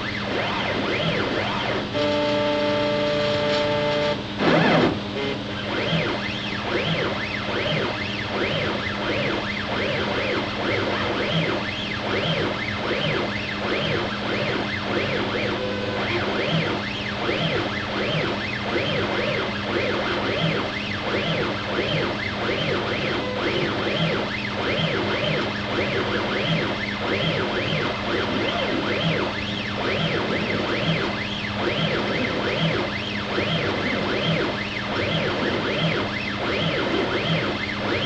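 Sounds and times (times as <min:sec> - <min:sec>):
steady hum: 0:00.0 - 0:38.0
stepper motors whining: 0:00.0 - 0:38.0.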